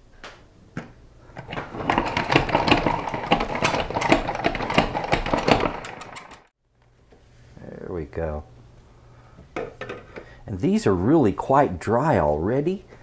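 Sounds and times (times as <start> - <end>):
salad spinner ratcheting and whirring: 1.4 - 6.5.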